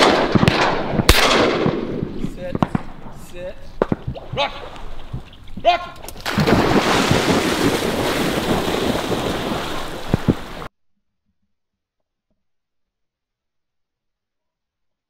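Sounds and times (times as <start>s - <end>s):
wind on microphone: 0.0s - 10.7s
dog splashing through water: 4.6s - 10.7s.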